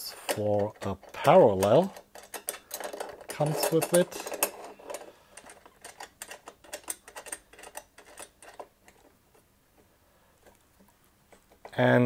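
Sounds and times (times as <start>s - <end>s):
metal clicks and taps: 0.3s - 9.4s, 10.4s - 11.8s.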